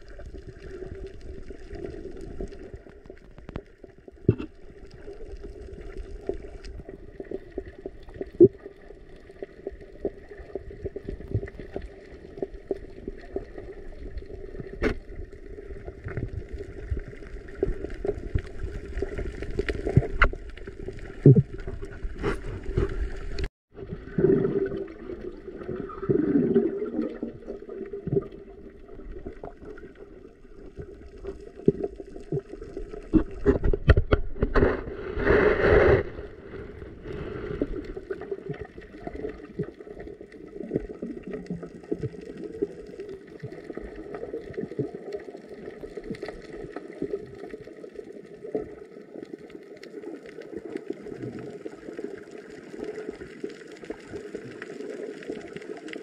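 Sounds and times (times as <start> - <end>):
muffled underwater water noise: 0.0 - 56.0
underwater clicks and knocks: 2.8 - 4.7, 17.6 - 23.5, 31.6 - 36.2.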